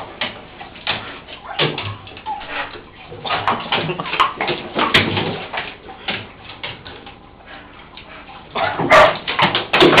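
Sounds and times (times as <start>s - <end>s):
dog panting: 7.4s - 9.0s.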